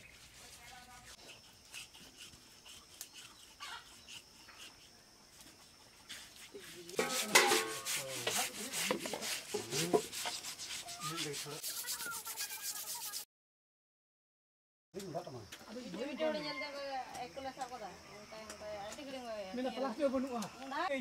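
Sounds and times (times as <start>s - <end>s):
hands scraping wet skin: 6.0s - 13.2s.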